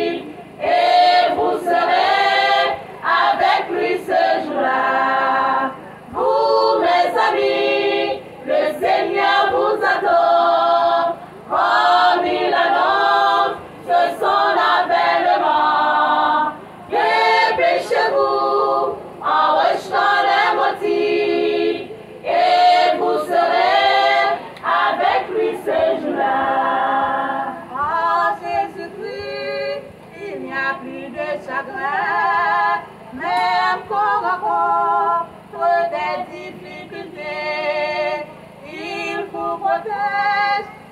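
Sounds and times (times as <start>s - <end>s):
women's choir singing: 0.0s - 40.9s.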